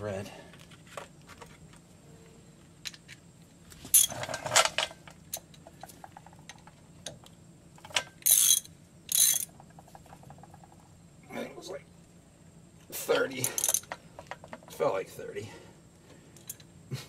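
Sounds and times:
ratchet wrench clicking: 8.2 - 9.5, 13.4 - 13.9.

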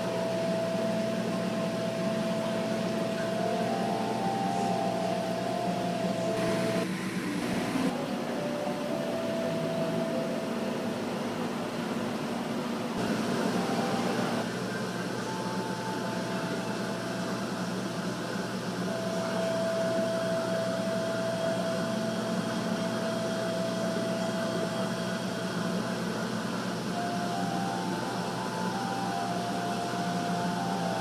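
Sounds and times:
machinery whir and hiss: 0.0 - 31.0
faint steady tone: 26.9 - 31.0.

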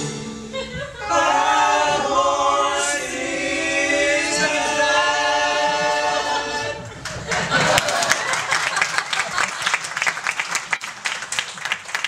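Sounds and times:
vocal ensemble singing a cappella: 0.0 - 7.7.

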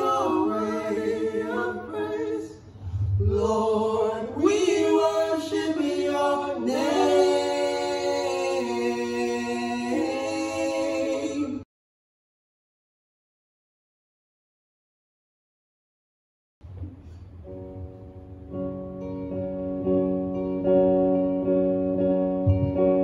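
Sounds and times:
voices singing a cappella harmony: 0.0 - 11.6.

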